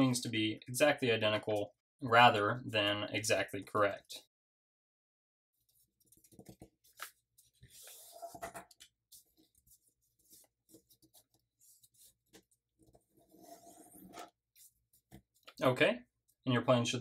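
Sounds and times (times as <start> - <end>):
paper rustling and crinkling: 5.8 - 15.6.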